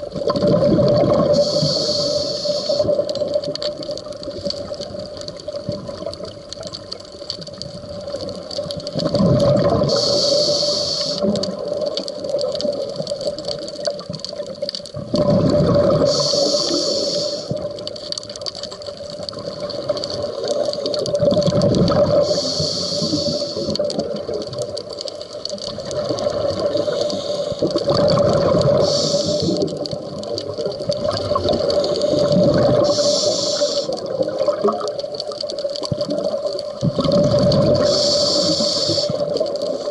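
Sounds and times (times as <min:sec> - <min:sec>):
exhaust bubbles rushing: 0:00.3 - 0:01.4, 0:09.1 - 0:09.9, 0:15.1 - 0:16.1, 0:27.7 - 0:28.8, 0:36.2 - 0:37.8
regulator valve hiss: 0:01.3 - 0:03.0, 0:09.8 - 0:11.5, 0:16.0 - 0:17.7, 0:22.2 - 0:24.0, 0:26.7 - 0:27.7, 0:28.7 - 0:29.8, 0:31.8 - 0:34.2, 0:37.8 - 0:39.9.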